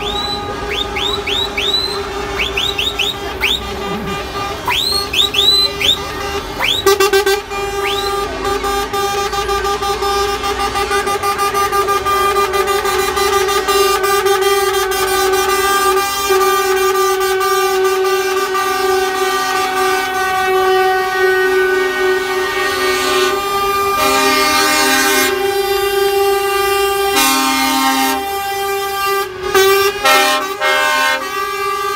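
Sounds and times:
high whistling chirps: 0.0s - 3.7s, 4.7s - 6.8s
lorry air horn blast: 1.8s - 4.7s, 6.2s - 31.9s.

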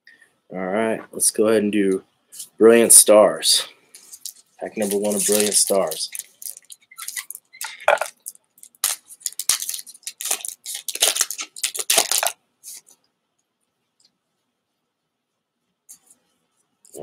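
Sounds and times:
foil wrapper crinkling and tearing: 4.0s - 12.9s.

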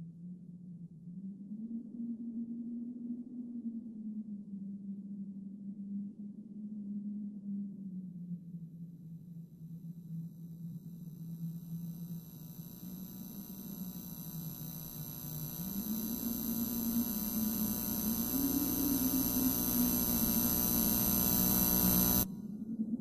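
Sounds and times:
electrical hum with high whine: 9.2s - 23.0s.

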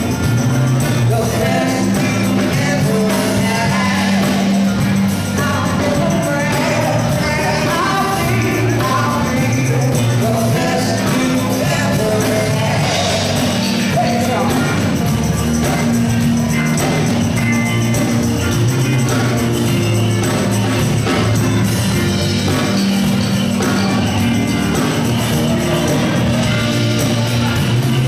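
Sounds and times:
bass: 0.0s - 28.0s
drums: 0.0s - 28.0s
electric guitar: 0.0s - 28.0s
keyboards: 0.0s - 28.0s
person singing: 0.3s - 15.5s.

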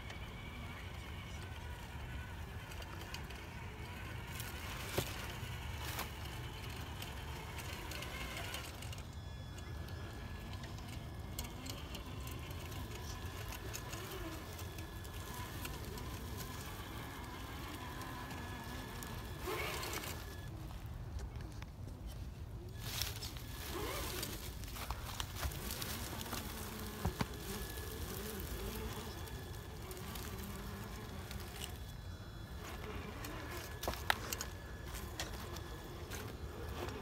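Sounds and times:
rc car motor whining: 0.0s - 20.9s, 22.7s - 37.0s
leaves rustling: 0.4s - 9.0s, 9.9s - 20.9s, 22.7s - 37.0s.

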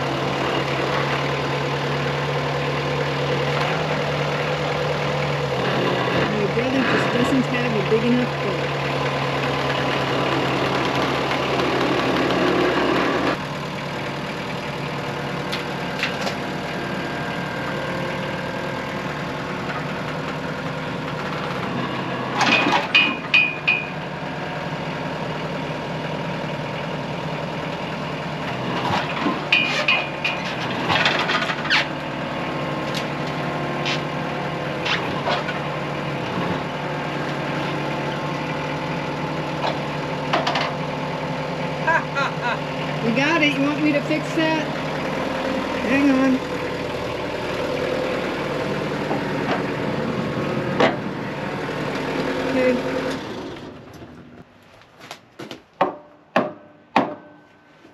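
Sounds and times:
skid steer engine: 0.0s - 57.9s
log knocking and clanking: 50.7s - 51.1s, 55.4s - 57.4s.

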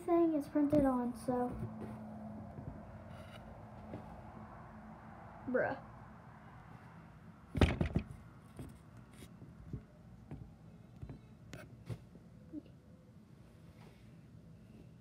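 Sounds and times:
thumps from handling phone: 7.6s - 8.8s.

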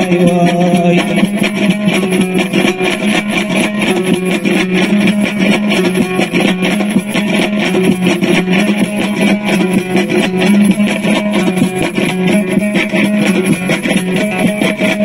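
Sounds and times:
man singing: 0.0s - 1.4s
lute strummed fast: 0.0s - 15.0s.

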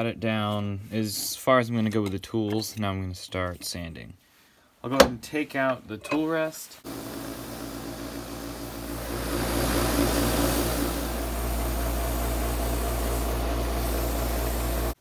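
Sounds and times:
wood lathe humming: 6.8s - 15.0s
sandpaper sanding hiss: 9.1s - 15.0s.

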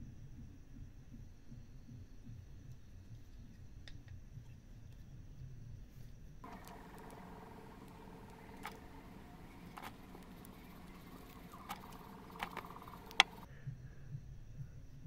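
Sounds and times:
background hiss with faint tones: 5.9s - 15.0s
small sharp clicks: 6.4s - 13.5s.

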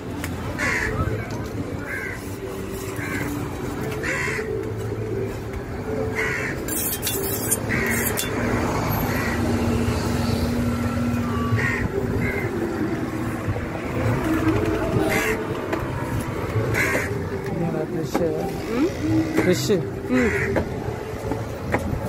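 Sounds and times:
crows cawing: 0.6s - 1.1s, 1.8s - 2.3s, 3.0s - 3.4s, 4.0s - 4.6s, 6.1s - 6.6s, 7.6s - 8.3s, 9.0s - 9.5s, 11.6s - 12.5s, 15.0s - 15.4s, 16.7s - 17.3s, 20.1s - 20.6s.

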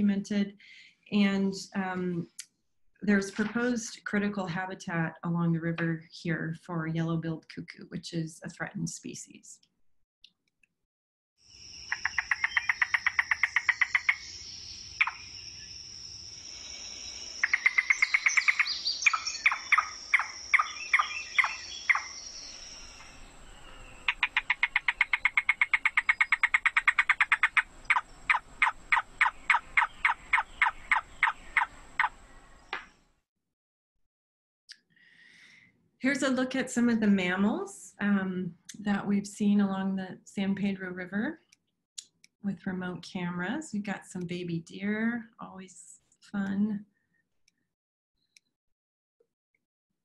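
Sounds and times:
cuckoo calling: 11.9s - 14.4s, 17.4s - 32.9s.

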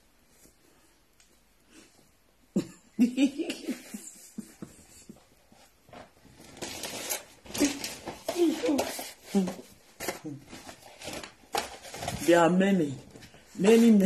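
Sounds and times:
woman laughing: 2.5s - 5.1s.

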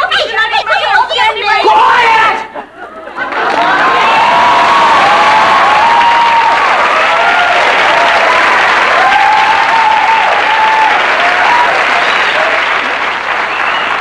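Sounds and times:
audience clapping and cheering: 3.0s - 14.0s
whoops: 3.5s - 14.0s.

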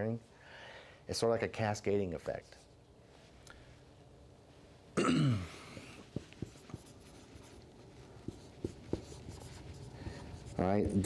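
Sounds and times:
marker writing on whiteboard: 5.8s - 11.0s.

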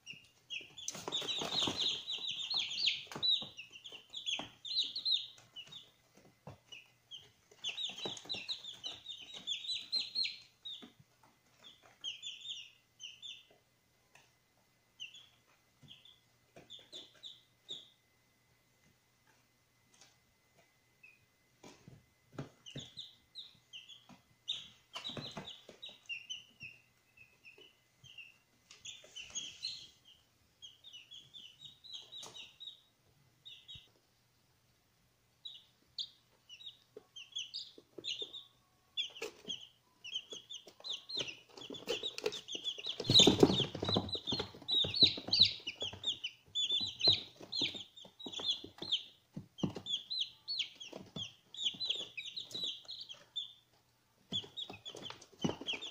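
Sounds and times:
chicks peeping: 0.0s - 55.9s.

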